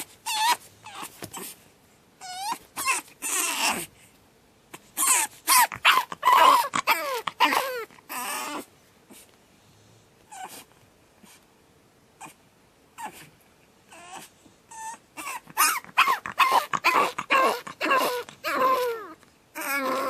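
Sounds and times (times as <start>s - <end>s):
puppy screaming: 0.0s - 1.5s, 2.2s - 3.9s, 5.0s - 8.7s, 13.9s - 20.0s.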